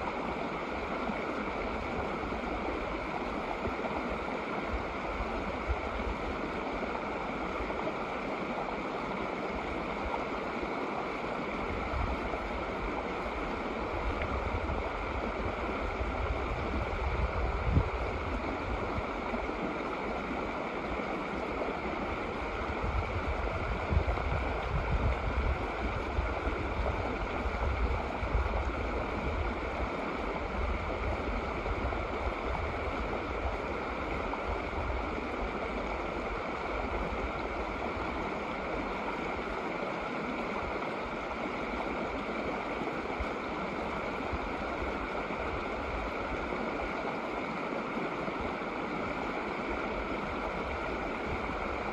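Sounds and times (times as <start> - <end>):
water rushing over rocks: 0.0 - 51.9.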